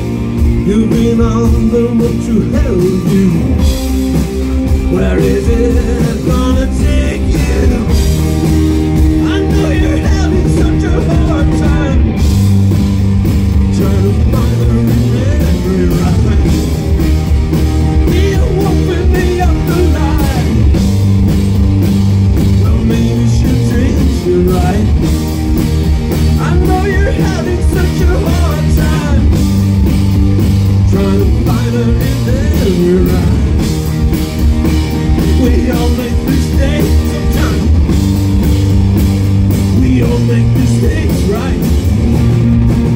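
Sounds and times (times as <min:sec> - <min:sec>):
drum kit: 0:00.0 - 0:42.9
electric guitars: 0:00.0 - 0:42.9.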